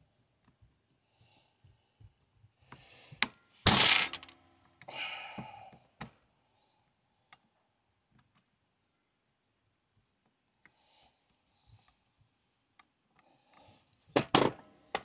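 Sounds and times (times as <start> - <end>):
metal parts clinking and scraping: 3.6 - 4.4.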